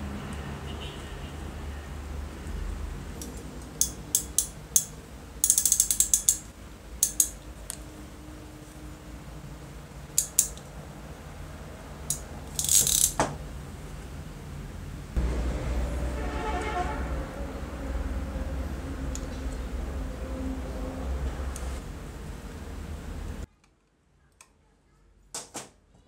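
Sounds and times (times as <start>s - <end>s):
crimping pliers clicking: 3.2s - 7.8s, 10.2s - 10.7s, 12.1s - 13.3s.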